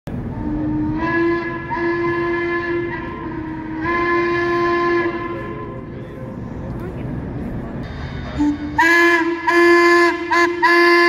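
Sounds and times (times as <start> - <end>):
low rumble of locomotive: 0.1 - 11.0
steam whistle blasts: 0.2 - 6.0, 8.3 - 11.0.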